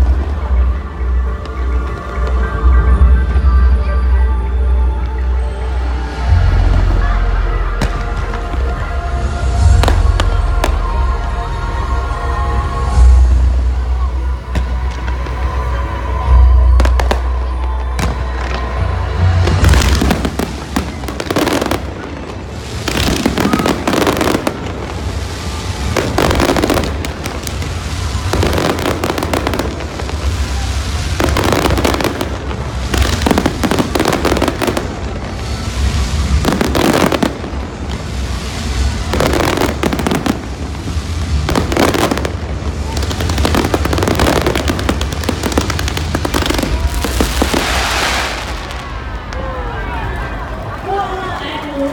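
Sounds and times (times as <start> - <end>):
fireworks crackling: 4.9 - 11.4, 12.6 - 51.9
fireworks bursts: 13.8 - 50.7.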